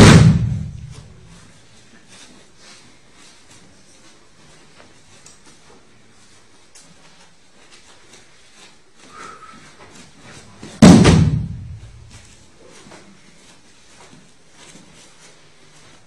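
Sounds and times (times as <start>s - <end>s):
body slamming onto mat: 0.0s - 1.2s, 10.6s - 12.3s
low boom: 0.0s - 1.2s, 10.8s - 12.2s.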